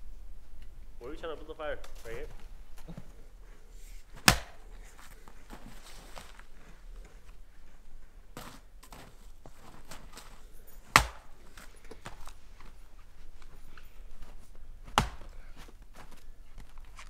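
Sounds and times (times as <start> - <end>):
axe chopping firewood: 4.2 - 4.6, 10.9 - 11.4, 14.8 - 15.4.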